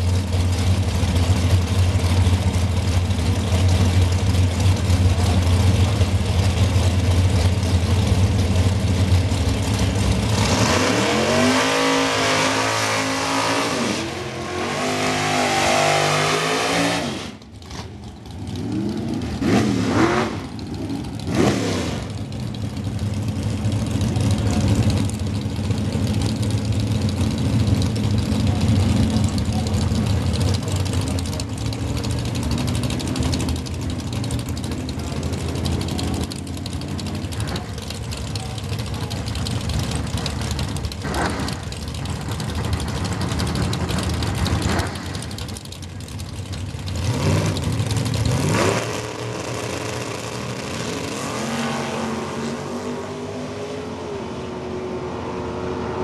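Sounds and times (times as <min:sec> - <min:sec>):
race engines idling: 0:00.0 - 0:56.0
engine revving high: 0:10.3 - 0:17.8, 0:18.6 - 0:22.2, 0:48.3 - 0:56.0.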